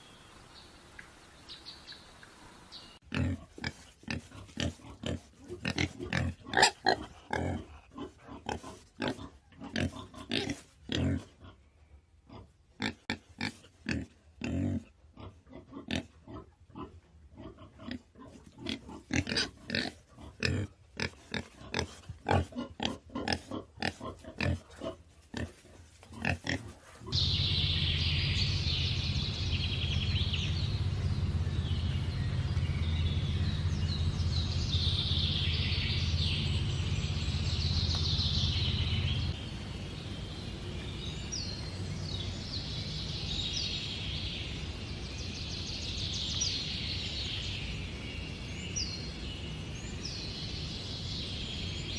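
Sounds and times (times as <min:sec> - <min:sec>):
birds chirping: 0:00.0 - 0:07.6, 0:27.0 - 0:51.9
wild boars grunting: 0:03.0 - 0:11.6, 0:12.3 - 0:39.4
steady low hum: 0:27.1 - 0:46.0.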